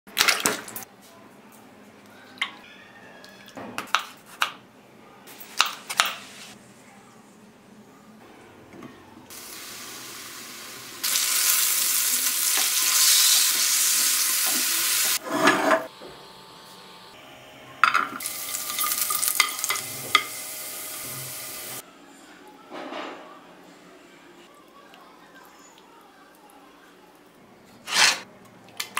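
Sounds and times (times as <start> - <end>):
tomatoes sizzling in hot oil: 9.3 - 15.2, 18.2 - 21.8
garlic sizzling in oil: 9.3 - 15.3, 18.2 - 21.8.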